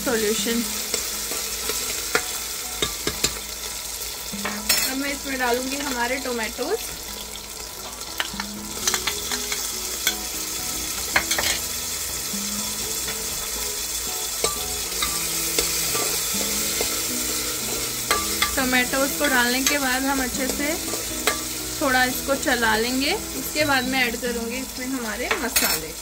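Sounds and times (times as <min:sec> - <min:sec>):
onions sizzling in hot oil: 0:00.0 - 0:26.0
metal spoon scraping a pan: 0:07.8 - 0:10.3, 0:10.9 - 0:11.7, 0:14.3 - 0:21.9.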